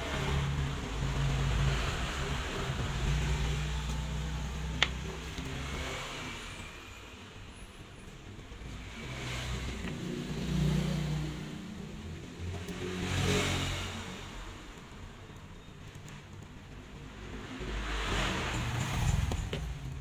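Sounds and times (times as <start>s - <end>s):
motor vehicle engine rumble: 0.0s - 20.0s.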